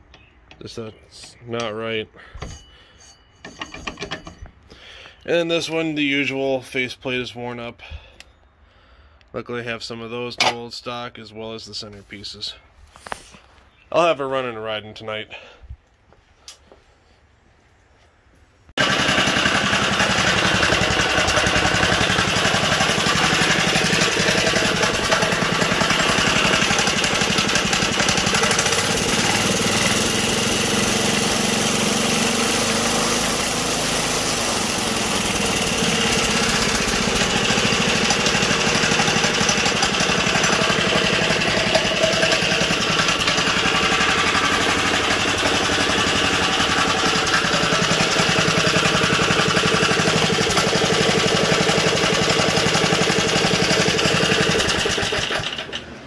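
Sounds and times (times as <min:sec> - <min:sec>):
small engine running: 0:18.8 - 0:56.0.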